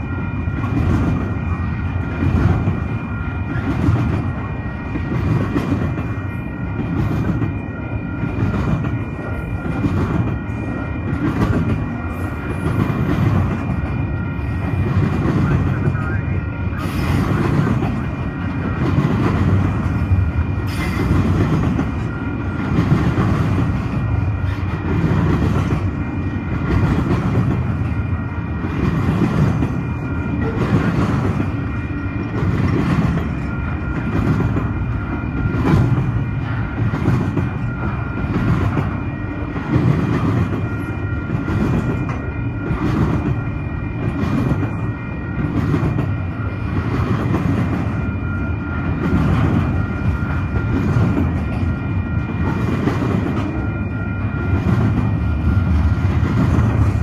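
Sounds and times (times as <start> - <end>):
freight train rumbling: 0.0 - 57.0.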